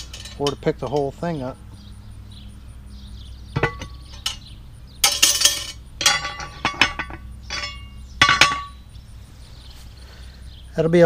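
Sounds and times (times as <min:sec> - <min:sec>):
metal rattling clatter: 0:00.0 - 0:01.1, 0:03.6 - 0:08.8
metal clinks on iron pot: 0:00.0 - 0:01.2, 0:03.5 - 0:04.4, 0:05.0 - 0:08.8.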